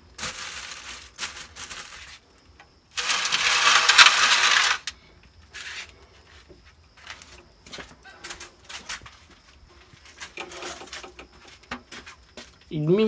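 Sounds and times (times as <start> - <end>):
metal tray scraping on brick: 3.0 - 4.9, 10.4 - 11.1
faint knocks and rustles: 5.5 - 12.7.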